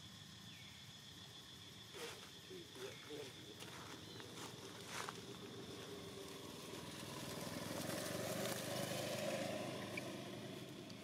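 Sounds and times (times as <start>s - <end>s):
passing vehicle engine: 4.9s - 11.0s.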